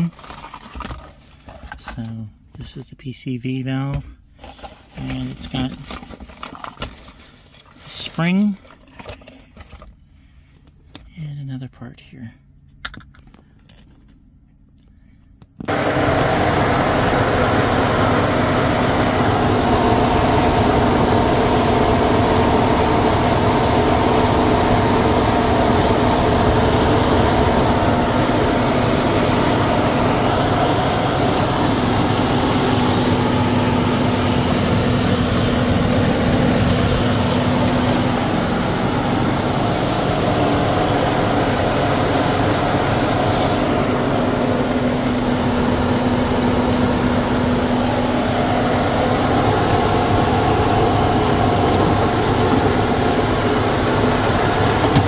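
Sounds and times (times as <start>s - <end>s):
car engine idling: 15.7s - 55.0s.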